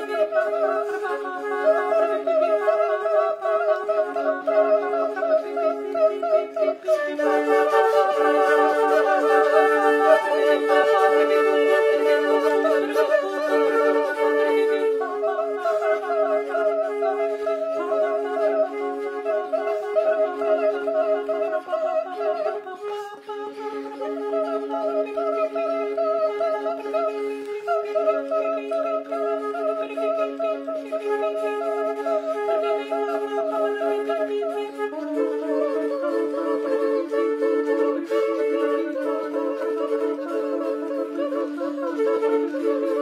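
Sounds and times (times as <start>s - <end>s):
voices singing in harmony: 0.0s - 16.6s
flutes holding long notes: 0.0s - 43.0s.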